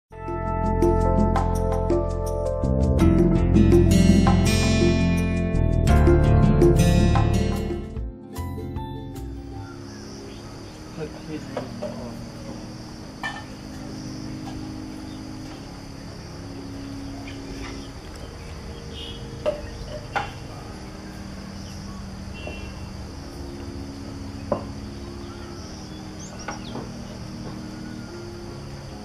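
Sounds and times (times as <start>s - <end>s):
insects chirring: 8.6s - 29.0s.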